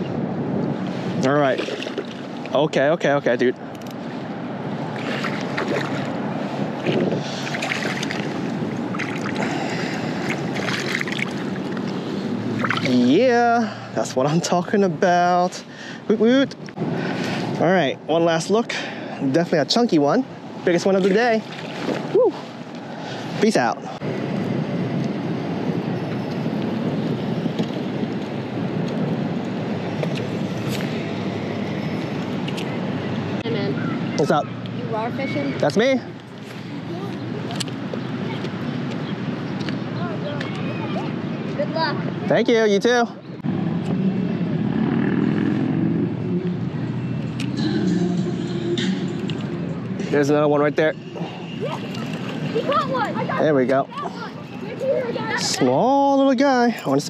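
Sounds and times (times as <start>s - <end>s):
water splashing: 1.4s - 2.5s, 4.8s - 13.2s, 20.9s - 22.4s, 51.2s - 53.4s
wind buffeting microphone: 3.6s - 13.2s, 21.4s - 42.3s.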